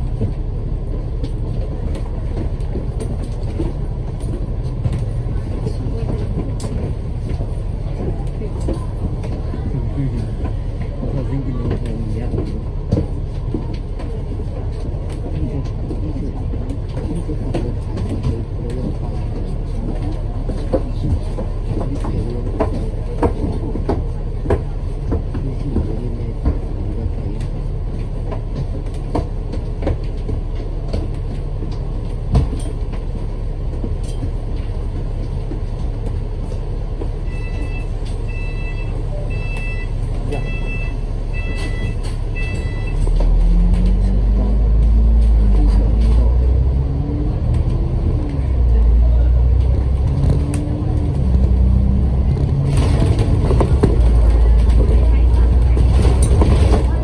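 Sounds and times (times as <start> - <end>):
bus engine and road drone: 0.0 - 57.0.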